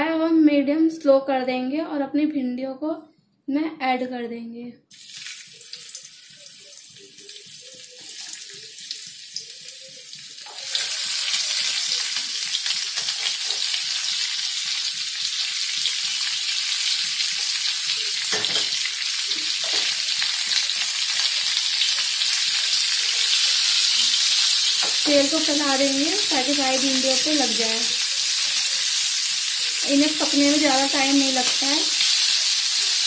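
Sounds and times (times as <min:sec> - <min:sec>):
okra sizzling in hot oil: 0:04.9 - 0:33.0.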